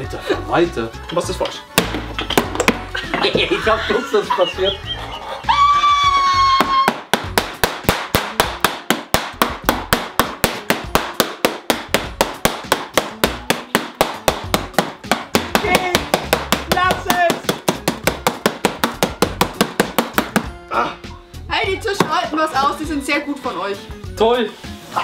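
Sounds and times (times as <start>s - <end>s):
rolling pin knocking on table: 6.6s - 20.5s.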